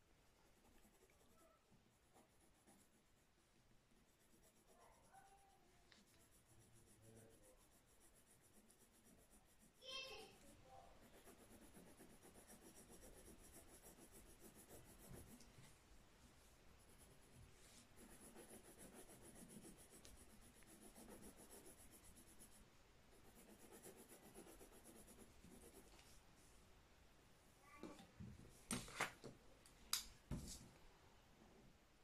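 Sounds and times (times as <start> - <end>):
pencil scratching on paper: 0.4 - 3.2, 3.9 - 15.5, 16.8 - 26.0.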